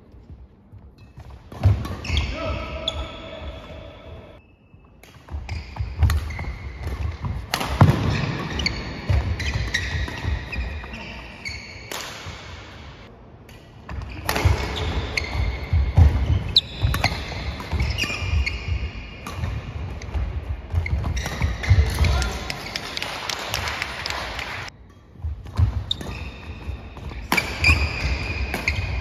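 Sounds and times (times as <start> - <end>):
shoes squeaking on wooden floor: 5.3 - 11.8, 14.1 - 19.2, 25.6 - 29.0
racket striking shuttlecock: 6.0 - 10.5, 27.2 - 29.0.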